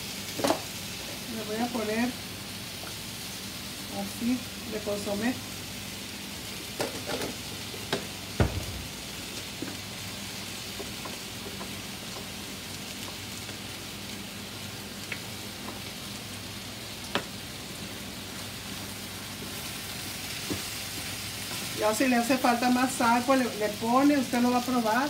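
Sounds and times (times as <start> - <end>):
vegetables frying in a pan: 0.0 - 25.0.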